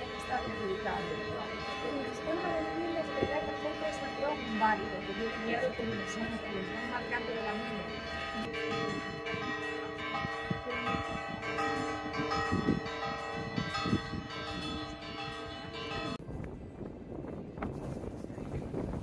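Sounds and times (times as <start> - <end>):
church bells pealing: 0.0 - 16.2.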